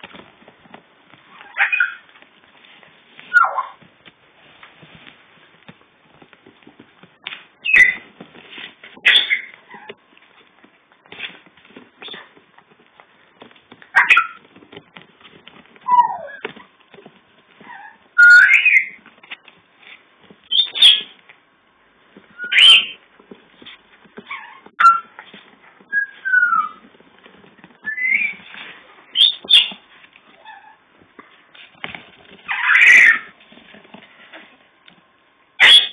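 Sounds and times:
faint rustling: 0.0s - 35.6s
puppies squeaking and whimpering: 1.4s - 2.1s, 3.3s - 3.8s, 7.6s - 8.1s, 9.0s - 10.0s, 14.0s - 14.5s, 15.8s - 16.6s, 17.6s - 19.0s, 20.5s - 21.2s, 22.4s - 23.0s, 24.3s - 25.1s, 25.8s - 26.9s, 27.8s - 28.5s, 29.1s - 29.8s, 30.4s - 30.8s, 32.5s - 33.3s.

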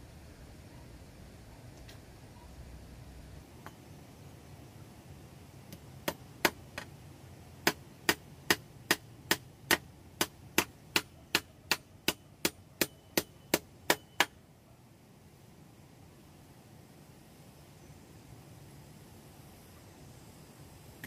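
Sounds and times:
hammer striking metal: 7.7s - 14.3s.

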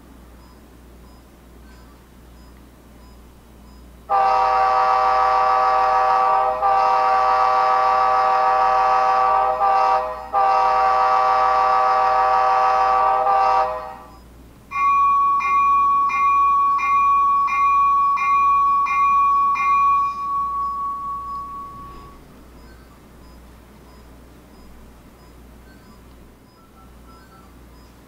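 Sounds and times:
multi-chime air horn: 4.1s - 22.2s
locomotive bell ringing: 13.9s - 23.0s, 26.6s - 27.9s.

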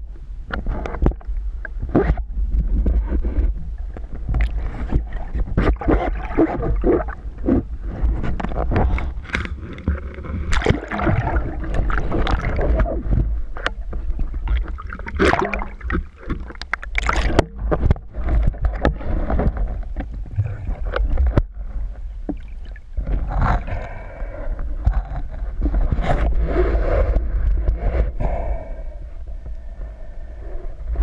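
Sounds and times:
constant low rumble: 0.0s - 31.0s
water sloshing and splashing: 1.9s - 24.0s.

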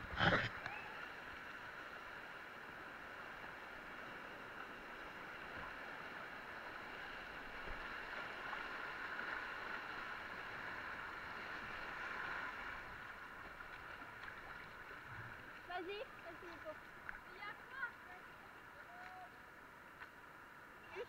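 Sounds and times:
paddle dipping into water: 11.3s - 19.3s.

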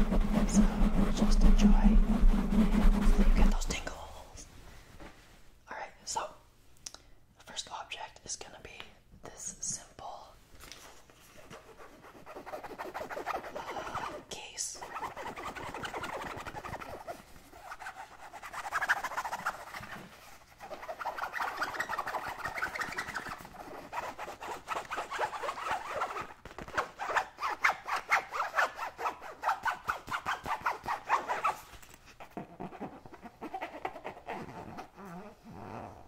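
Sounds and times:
fingernails scratching fabric: 0.0s - 3.8s, 11.5s - 14.2s, 14.8s - 36.0s.

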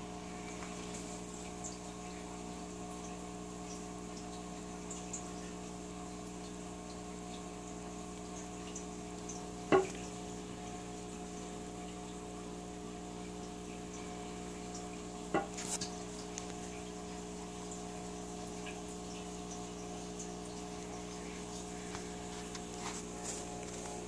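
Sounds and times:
steady mechanical hum: 0.0s - 24.0s.

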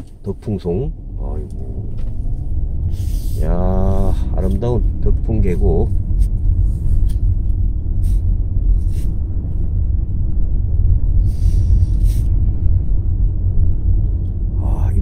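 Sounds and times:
car engine and road noise: 0.0s - 15.0s
brief hiss: 11.2s - 12.3s.

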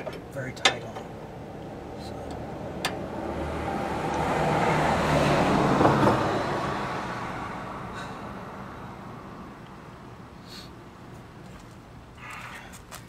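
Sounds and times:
road vehicle driving past: 1.1s - 10.2s.

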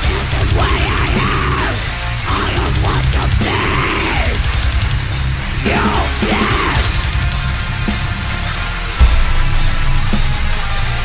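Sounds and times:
heavily distorted metal guitars: 0.0s - 11.0s
high bending sound: 8.2s - 11.0s.

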